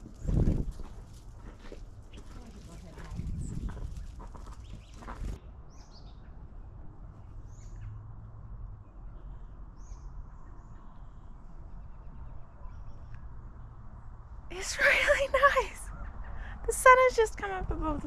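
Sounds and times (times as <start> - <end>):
small birds chirping: 0.0 - 1.2, 2.0 - 8.0.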